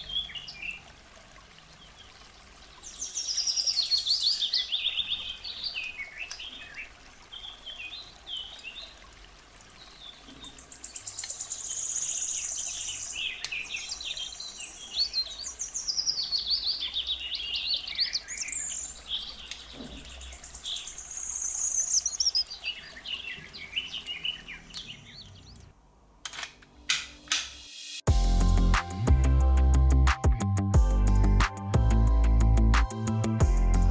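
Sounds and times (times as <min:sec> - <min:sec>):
birds singing: 0:00.0 - 0:01.0, 0:01.6 - 0:25.7
music: 0:26.8 - 0:33.9.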